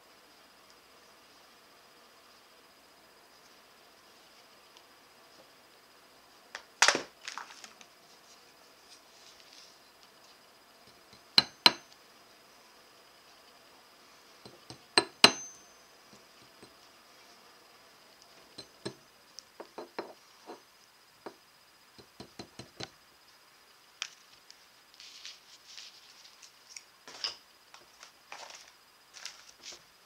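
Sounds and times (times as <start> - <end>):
hammer striking metal anvil: 11.4 - 11.8, 15.0 - 15.7.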